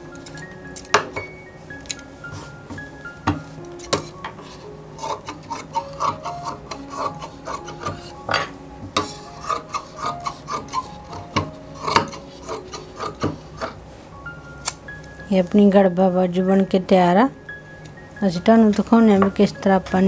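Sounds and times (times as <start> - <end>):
shears snipping fabric: 5.0 - 8.2, 9.0 - 13.8.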